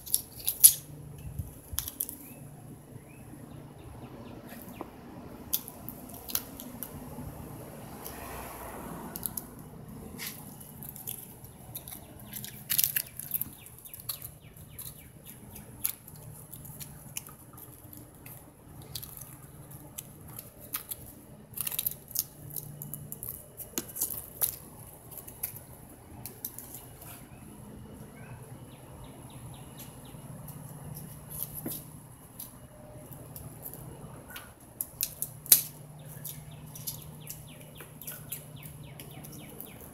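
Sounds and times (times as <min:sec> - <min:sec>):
leaf scraping on concrete: 0:07.8 - 0:14.8.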